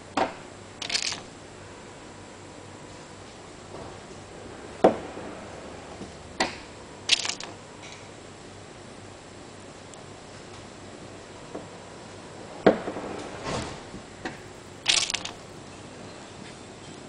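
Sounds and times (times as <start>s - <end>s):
tool clicking pins into wood: 14.8s - 15.4s.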